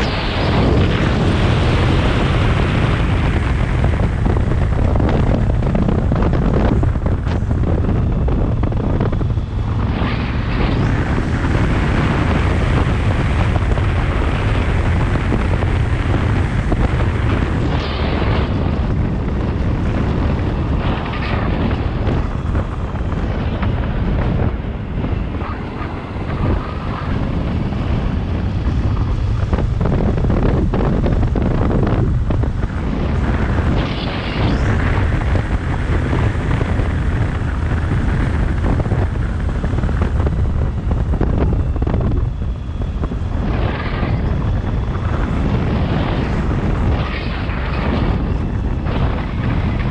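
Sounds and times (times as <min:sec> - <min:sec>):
wind buffeting microphone: 0:00.0 - 0:49.9.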